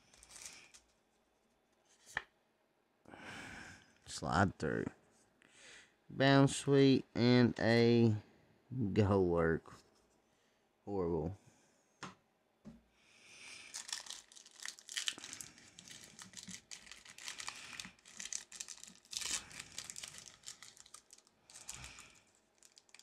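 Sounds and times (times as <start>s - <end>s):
foil wrapper crinkling and tearing: 0.0s - 0.9s, 13.6s - 23.0s.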